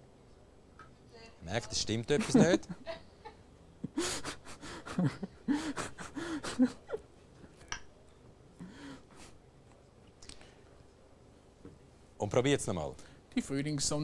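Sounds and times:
man laughing: 2.2s - 7.0s.

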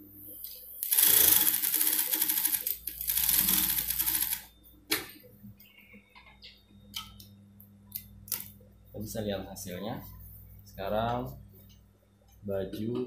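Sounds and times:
sewing machine rattling: 0.8s - 4.5s.

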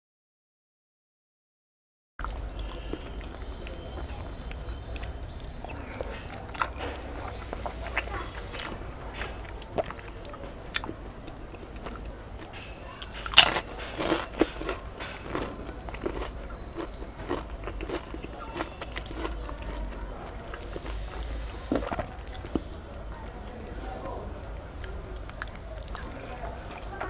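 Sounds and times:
loud crunchy bite: 2.2s - 22.7s
person chewing food: 2.2s - 27.0s.

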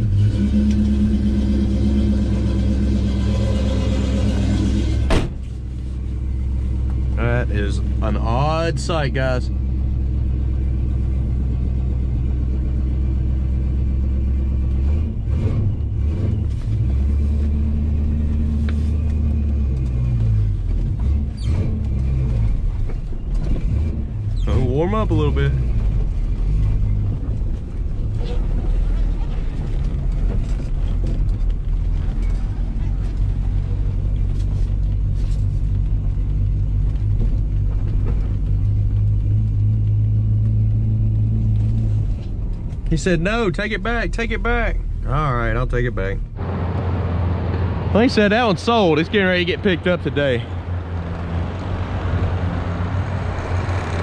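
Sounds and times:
car engine idling and revving: 0.0s - 54.0s.

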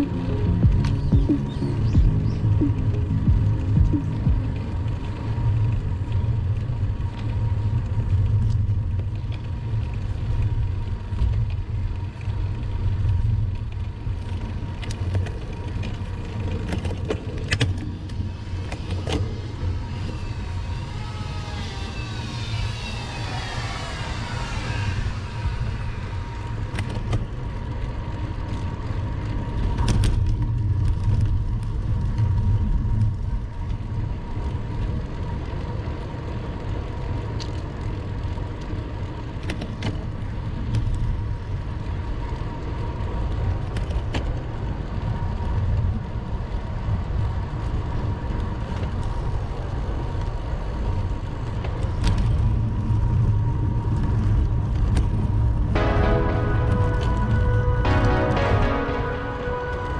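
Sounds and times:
wind and road rumble: 0.0s - 57.9s.

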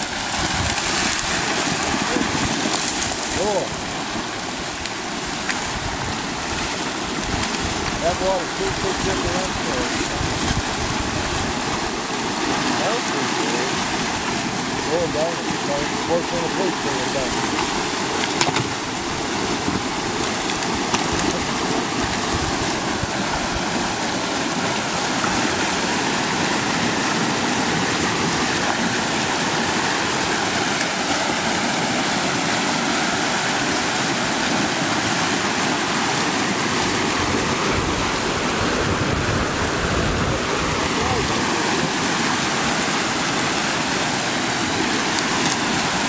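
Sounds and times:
rushing floodwater: 0.0s - 46.0s.

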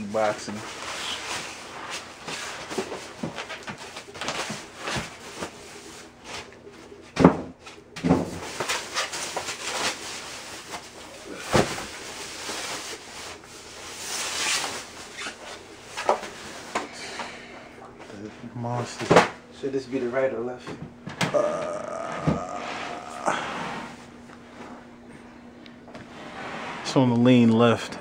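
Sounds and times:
styrofoam and plastic bag rustling: 0.0s - 6.5s, 8.2s - 16.9s.

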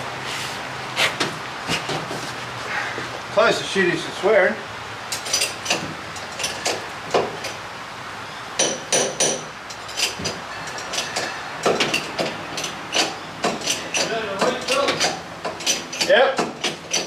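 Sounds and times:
sharp metal knocks and clinks: 5.1s - 7.6s, 8.6s - 17.0s.

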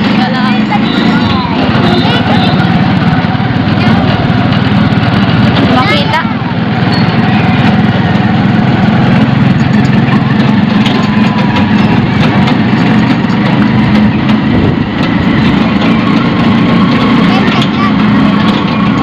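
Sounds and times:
vehicle engine droning: 0.0s - 19.0s.

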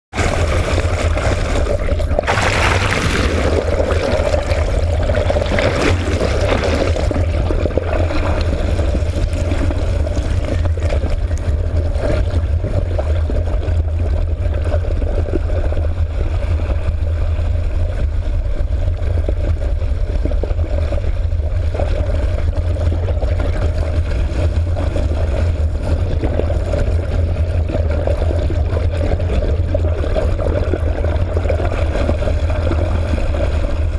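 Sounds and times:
underwater boat engine hum: 0.1s - 33.9s
water rushing over camera: 0.1s - 33.9s
hissing surges of water: 0.2s - 11.2s.

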